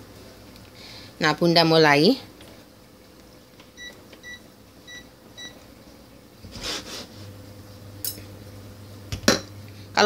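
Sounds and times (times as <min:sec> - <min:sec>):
cooker low steady hum: 0:00.0 - 0:10.0
cooker touch controls beeping: 0:03.7 - 0:05.6.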